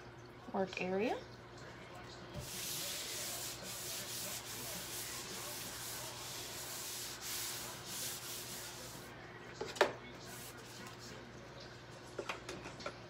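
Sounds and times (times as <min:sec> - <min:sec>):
wipe scrubbing wooden tabletop: 0:02.4 - 0:09.1, 0:10.2 - 0:11.0.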